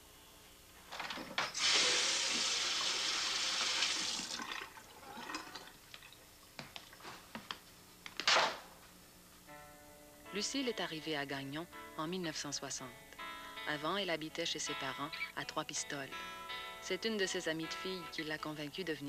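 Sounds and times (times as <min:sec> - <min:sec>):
short sharp hiss: 0:01.6 - 0:02.6
water running from a tap: 0:01.6 - 0:05.7.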